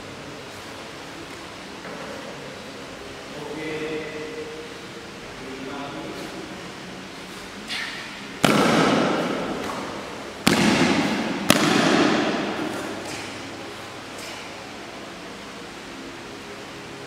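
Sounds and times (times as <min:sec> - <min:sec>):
sharp hits echoing in hall: 0:03.4 - 0:15.5.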